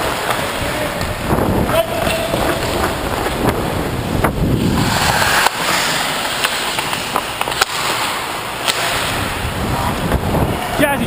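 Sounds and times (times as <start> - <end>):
skate blades scraping ice: 0.0 - 0.9, 1.7 - 10.1
hockey stick and puck clacks: 0.0 - 1.1, 1.7 - 3.6, 4.2 - 10.0
wind on microphone: 0.5 - 5.7, 9.0 - 11.0.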